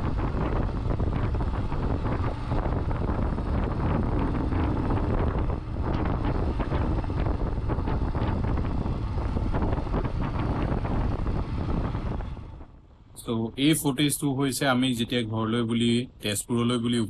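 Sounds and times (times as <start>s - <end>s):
motorcycle engine running: 0.0s - 12.8s
wind buffeting microphone: 0.0s - 15.9s.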